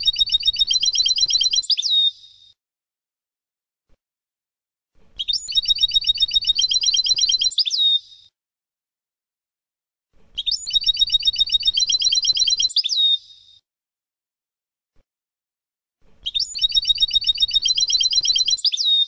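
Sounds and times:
goldfinch trilling song: 0.0s - 2.3s, 5.2s - 8.2s, 10.4s - 13.4s, 16.2s - 19.0s.

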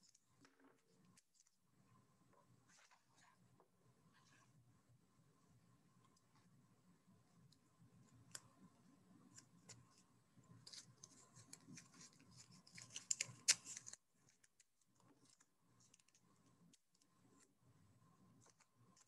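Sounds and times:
tape crackling and clicking: 7.4s - 17.6s, 18.2s - 19.0s.

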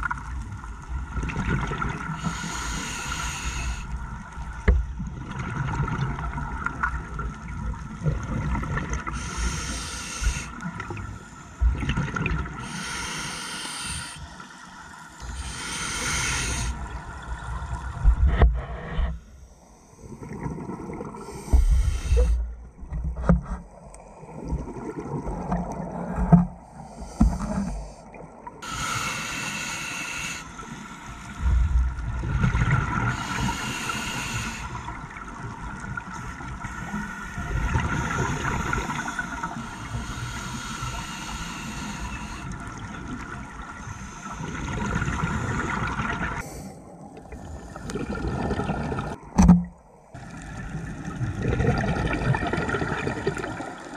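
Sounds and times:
diver breathing through regulator: 2.2s - 4.0s, 9.1s - 11.8s, 12.6s - 16.9s, 21.2s - 22.6s, 26.7s - 31.8s, 33.0s - 35.0s, 36.1s - 42.9s, 43.7s - 48.2s
bubbling exhales: 47.2s - 49.2s, 51.2s - 53.7s.

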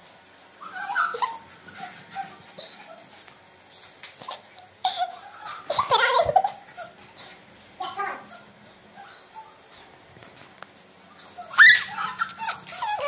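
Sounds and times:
child laughing and squealing: 0.6s - 3.0s, 4.3s - 7.0s, 11.4s - 13.0s.

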